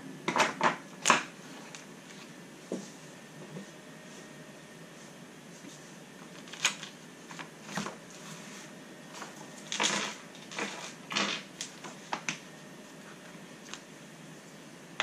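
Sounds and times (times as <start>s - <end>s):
paper pages turning: 6.2s - 8.3s.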